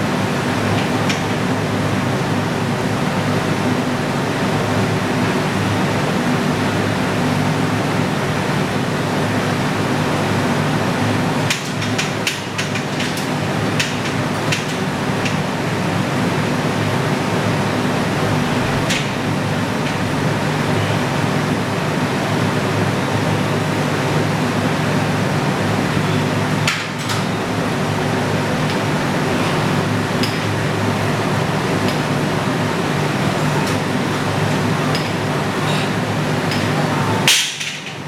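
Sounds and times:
floor fan running: 0.0 - 38.0.

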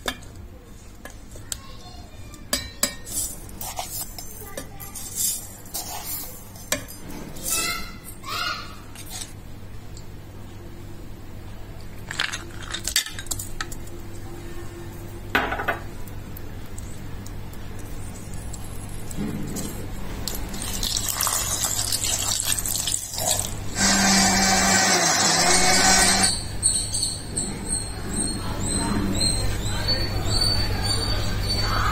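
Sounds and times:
ice cubes clinking in metal jar: 20.3 - 23.5.

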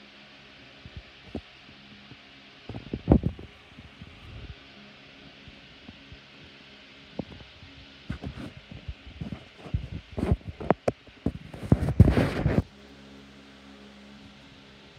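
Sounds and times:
faint steady hum: 0.0 - 14.9
microphone handling knocks and rubbing: 2.7 - 4.5, 8.1 - 12.7.

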